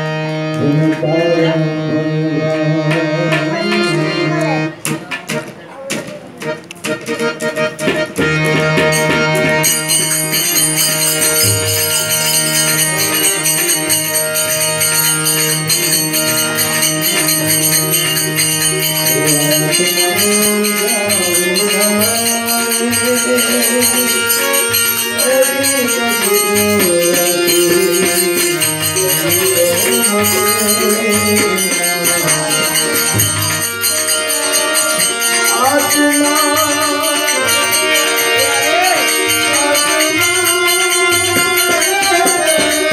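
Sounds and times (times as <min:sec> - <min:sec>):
harmonium chords: 0:00.0 - 0:42.9
person singing: 0:00.6 - 0:04.8, 0:14.9 - 0:42.9
jingling hand percussion: 0:02.3 - 0:42.9.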